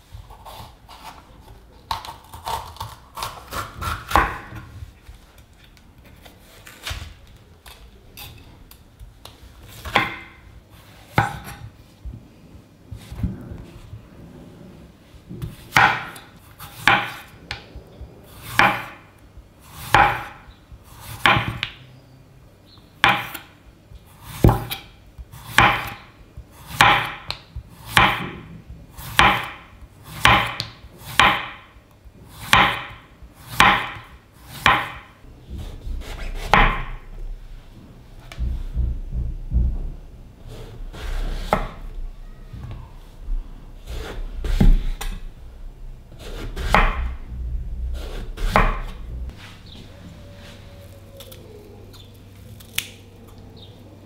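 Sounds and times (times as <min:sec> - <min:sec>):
low rumble: 0:35.2 - 0:36.2, 0:36.9 - 0:40.4, 0:46.8 - 0:54.0
knife slicing on wooden board: 0:48.0 - 0:48.9.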